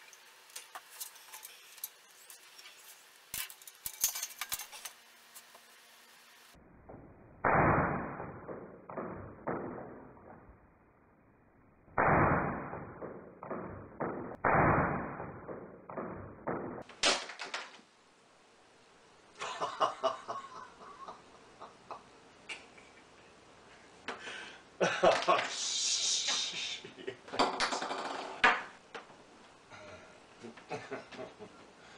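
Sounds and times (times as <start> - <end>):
rattling of small parts: 0.0 - 5.5.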